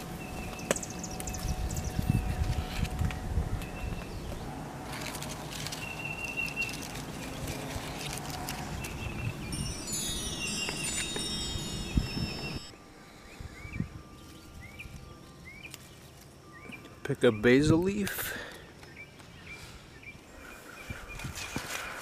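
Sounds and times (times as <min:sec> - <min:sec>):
wind: 0:00.0 - 0:22.0
small bird chirping: 0:05.7 - 0:17.7
sparkling chime falling in pitch: 0:09.5 - 0:12.8.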